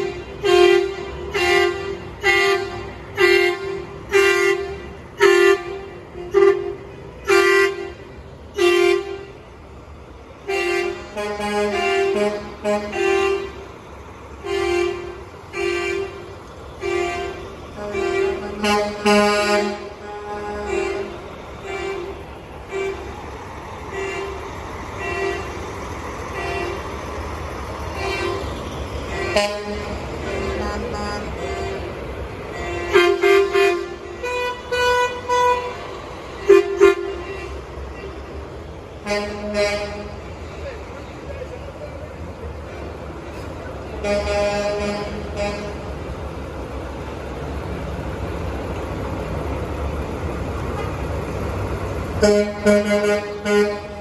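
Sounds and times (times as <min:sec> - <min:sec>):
truck air horn blasts: 0:00.0 - 0:09.5, 0:10.4 - 0:13.7, 0:14.4 - 0:23.2, 0:23.9 - 0:27.0, 0:27.8 - 0:40.5, 0:43.9 - 0:46.0, 0:50.7 - 0:51.1, 0:52.2 - 0:54.0.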